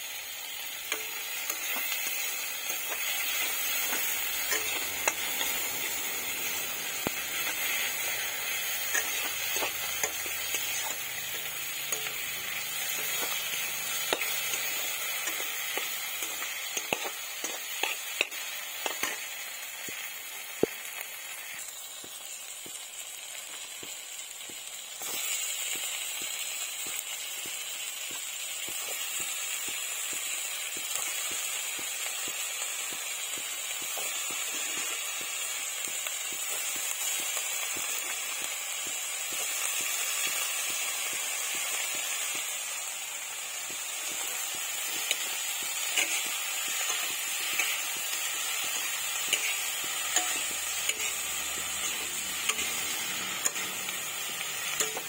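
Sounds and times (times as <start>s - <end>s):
vegetables sizzling in a wok: 0.0s - 55.0s
spatula scraping metal wok: 0.6s - 19.4s, 44.0s - 55.0s.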